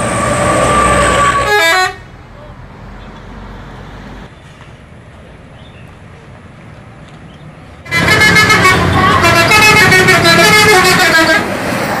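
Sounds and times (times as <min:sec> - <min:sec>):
bus engine rumble: 0:00.0 - 0:12.0
bus musical horn tune: 0:00.6 - 0:02.0, 0:07.9 - 0:11.6.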